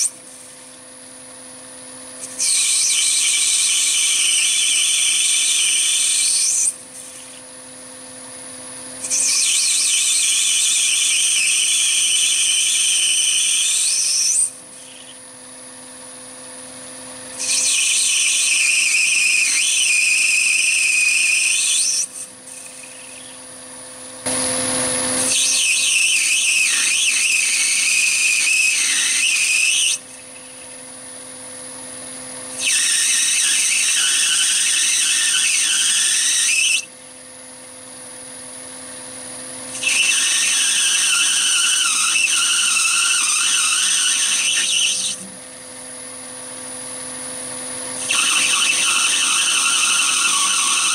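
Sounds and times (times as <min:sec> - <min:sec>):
lathe tool squealing: 0:02.2 - 0:07.5, 0:09.0 - 0:15.3, 0:17.3 - 0:23.6, 0:24.3 - 0:30.8, 0:32.5 - 0:36.9, 0:39.7 - 0:45.4, 0:47.9 - 0:50.9.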